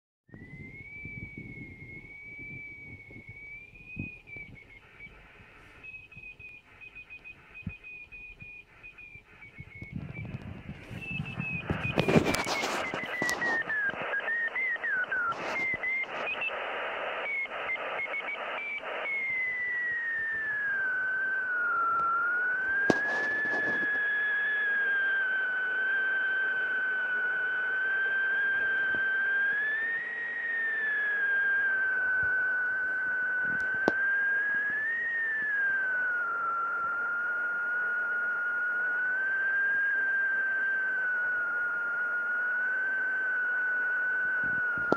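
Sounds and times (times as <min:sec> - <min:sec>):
receiver hiss: 0:00.3 - 0:44.9
whistling beat-note tone: 0:00.3 - 0:44.9
sharp clicks: 0:03.0 - 0:21.0, 0:32.2 - 0:35.6.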